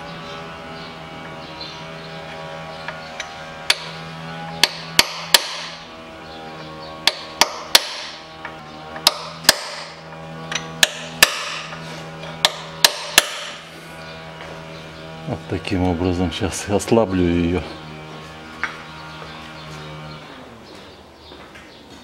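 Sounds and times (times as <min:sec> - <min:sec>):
hammer striking metal drift: 0:04.6 - 0:05.8, 0:09.0 - 0:11.8, 0:12.4 - 0:13.6.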